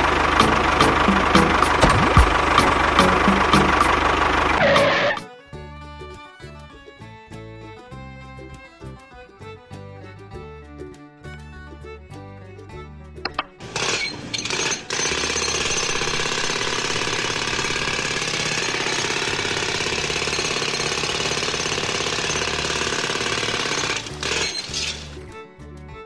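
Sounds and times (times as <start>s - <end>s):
background music: 0.0s - 15.0s, 23.6s - 26.0s
small electric pump motor buzzing: 13.6s - 25.2s.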